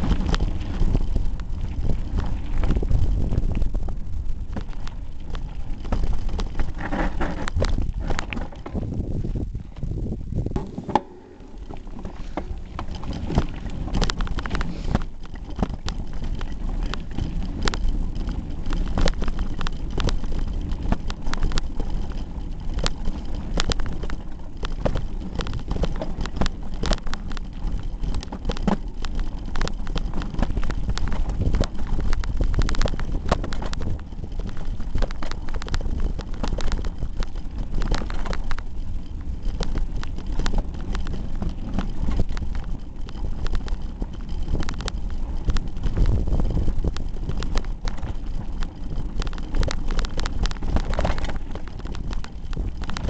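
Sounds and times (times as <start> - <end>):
bike rattling over gravel: 0.0 - 53.0
low rumble: 0.0 - 53.0.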